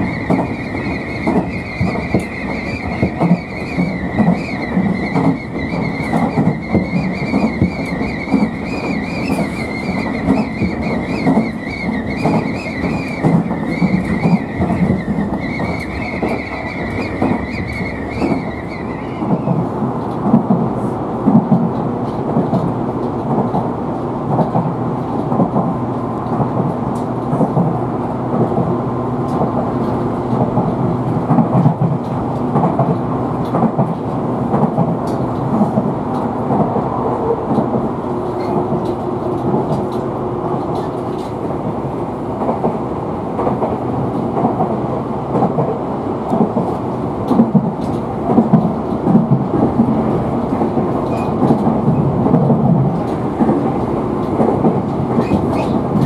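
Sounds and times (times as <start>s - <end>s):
train wheels rumbling on rail: 0.0s - 56.0s
light clicks over the track: 31.3s - 36.7s, 37.5s - 41.5s, 45.3s - 49.7s, 50.5s - 56.0s.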